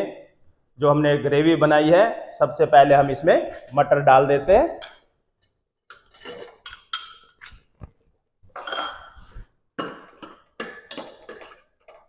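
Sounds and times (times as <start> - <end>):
metal spoon clinking on pot: 4.8 - 5.1, 5.9 - 7.6.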